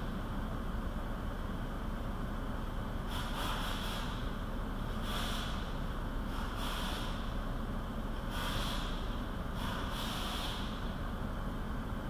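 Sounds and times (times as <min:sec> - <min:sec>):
steady low rumble: 0:00.0 - 0:12.0
short hissing bursts: 0:03.1 - 0:04.2, 0:05.0 - 0:05.7, 0:06.3 - 0:07.3, 0:08.3 - 0:10.8.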